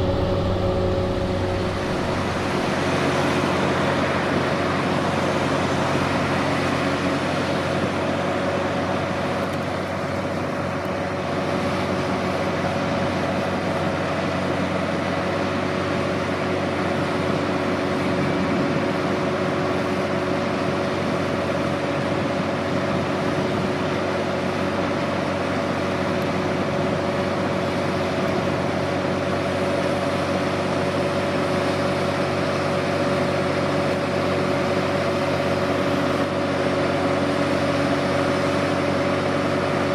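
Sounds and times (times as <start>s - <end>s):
diesel engine humming: 0.0s - 3.7s
high whine: 0.0s - 4.1s.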